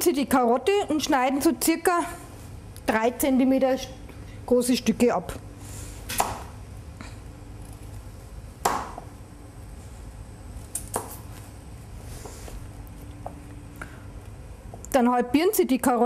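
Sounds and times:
knife chopping carrot: 6.1 - 6.4, 10.7 - 11.2.

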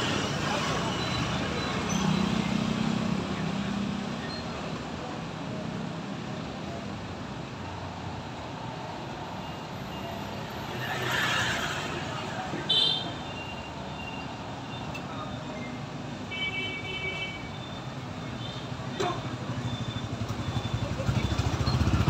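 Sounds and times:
steady traffic noise: 0.0 - 22.0
motor scooters passing: 20.3 - 22.0.

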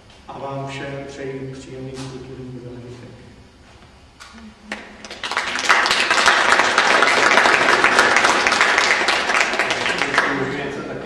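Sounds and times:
audience applauding: 4.7 - 10.9.

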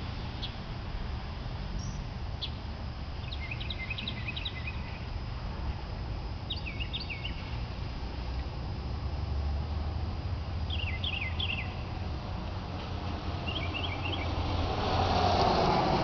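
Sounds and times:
steady low rumble: 0.0 - 16.0
small birds chirping: 1.8 - 2.6, 3.2 - 5.2, 6.4 - 7.6, 10.6 - 12.0, 13.4 - 14.5.

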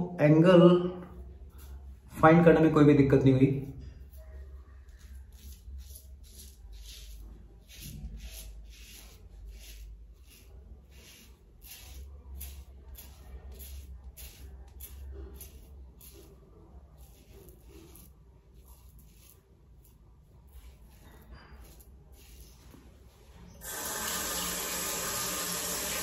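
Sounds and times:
razor scraping stubble: 4.0 - 24.6.

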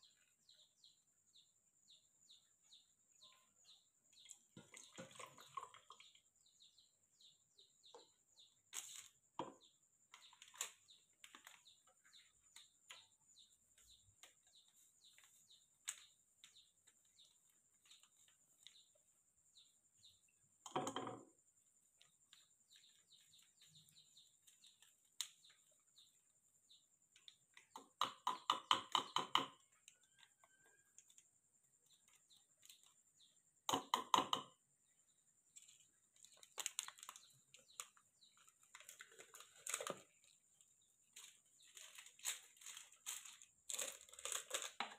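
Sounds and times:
foil pouch crinkling: 36.2 - 40.2, 41.2 - 44.9.

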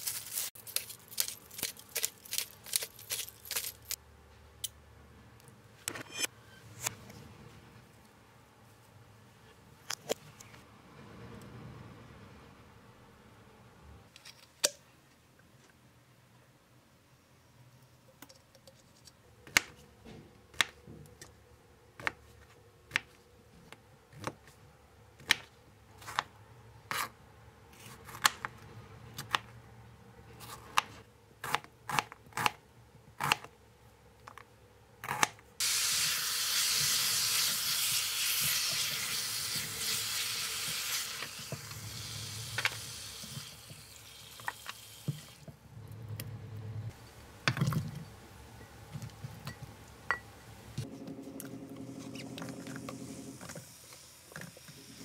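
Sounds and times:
meat and onion sizzling in pot: 35.6 - 45.4, 52.7 - 55.0.

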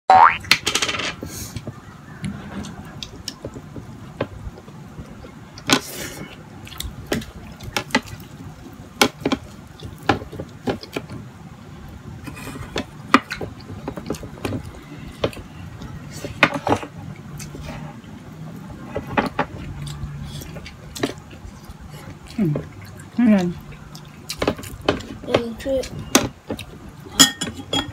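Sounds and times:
wet chewing: 5.1 - 11.2, 12.6 - 25.2, 25.8 - 27.1.

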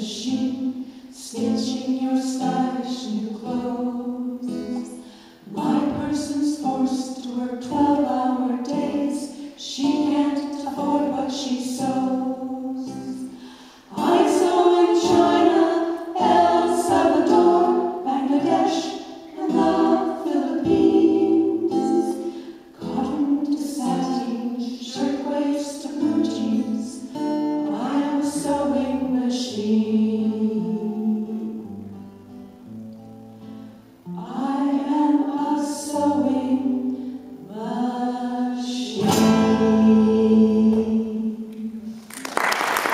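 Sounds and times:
women singing in harmony: 0.0 - 31.7, 34.1 - 42.1
strummed acoustic guitar: 0.1 - 25.2, 38.8 - 41.2.

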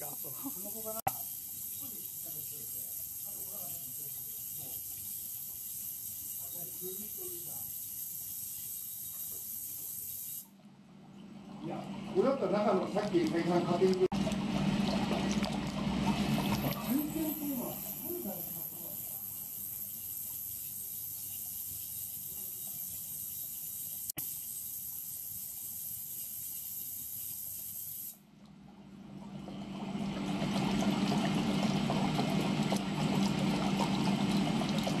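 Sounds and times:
mechanical running noise: 0.0 - 10.5, 11.7 - 28.2
liquid churning and sloshing: 11.3 - 18.0, 28.3 - 35.0.

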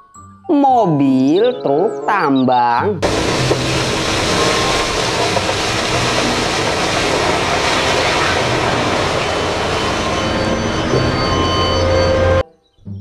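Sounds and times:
rock and earth pouring out: 3.0 - 11.9.

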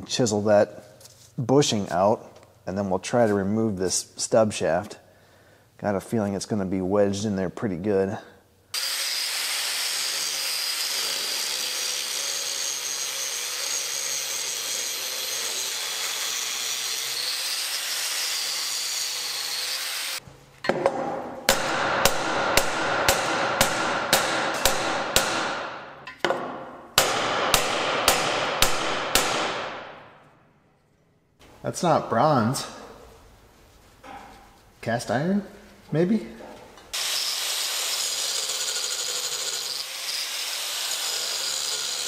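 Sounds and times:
angle grinder grinding metal: 8.8 - 20.2, 37.0 - 42.0
hammer striking chisel on steel: 20.7 - 29.8.

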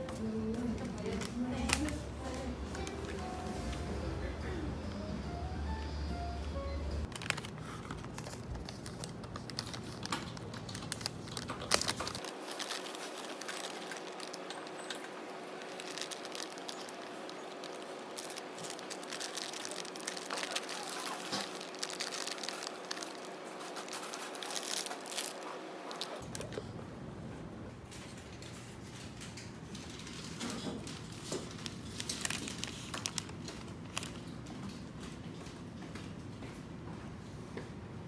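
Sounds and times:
paper bag crinkling: 7.0 - 26.6, 28.4 - 35.0.

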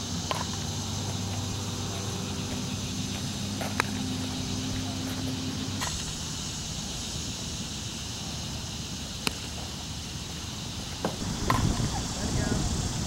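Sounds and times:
wind noise on microphone: 11.2 - 13.0.

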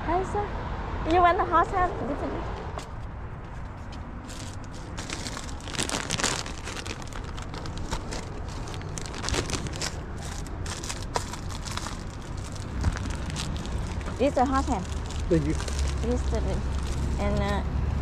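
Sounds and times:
plastic wrappers crinkling: 4.2 - 17.5
low rumble: 4.8 - 18.0.

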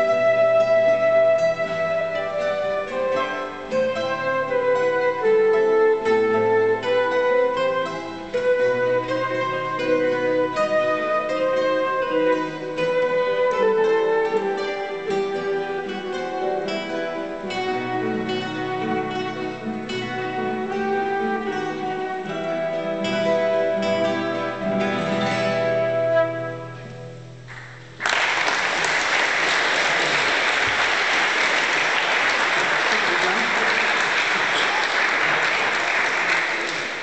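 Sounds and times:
classical guitar ensemble: 0.0 - 37.0
audience applause: 27.5 - 37.0.

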